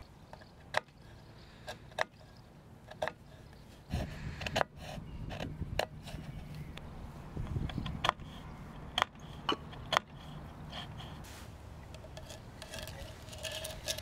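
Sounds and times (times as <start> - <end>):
awl clicking and creaking in wood: 0.0 - 11.2, 11.8 - 14.0
handling rustle: 10.8 - 14.0.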